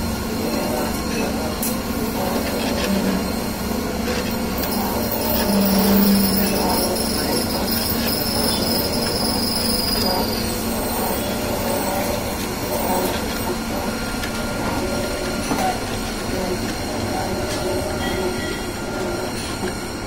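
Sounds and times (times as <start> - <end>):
machine whirring: 0.0 - 20.0
thin high whine: 2.2 - 15.6.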